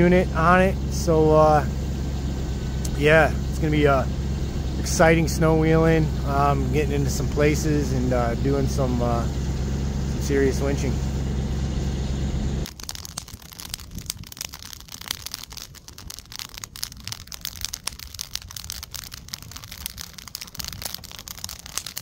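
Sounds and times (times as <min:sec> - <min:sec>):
vehicle engine idling: 0:00.0 - 0:12.7, 0:15.0 - 0:22.0
wood fire crackling and popping: 0:12.6 - 0:22.0.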